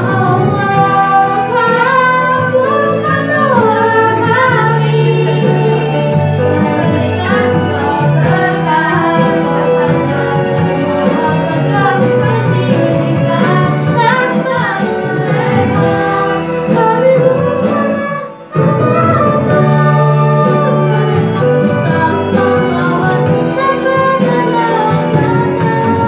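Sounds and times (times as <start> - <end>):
high singing voice: 0.0 - 26.0
instrumental backing with bass: 0.0 - 26.0.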